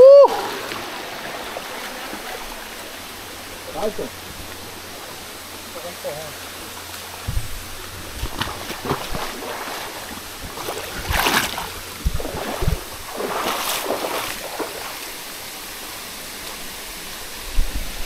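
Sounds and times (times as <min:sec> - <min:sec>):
water rushing in stream: 0:00.0 - 0:18.0
water splashing: 0:00.3 - 0:18.0
low knocks: 0:07.2 - 0:09.2.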